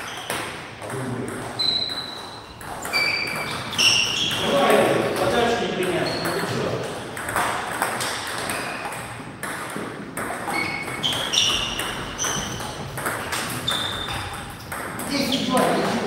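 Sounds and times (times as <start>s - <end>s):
shoe squeaks: 0.0s - 0.4s, 1.6s - 4.9s, 5.9s - 6.6s, 8.5s - 9.0s, 10.4s - 15.9s
ball clicking off paddles: 0.0s - 16.0s
ball bouncing on table: 0.2s - 16.0s.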